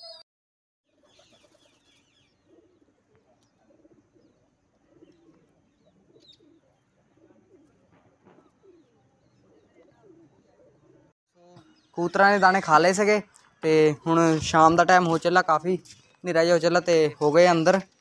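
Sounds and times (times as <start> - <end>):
pigeons cooing: 1.0 - 11.1.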